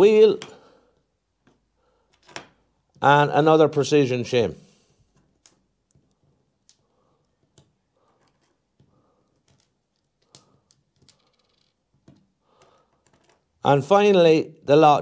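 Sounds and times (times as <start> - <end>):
small metal parts clicking: 9.2 - 13.5.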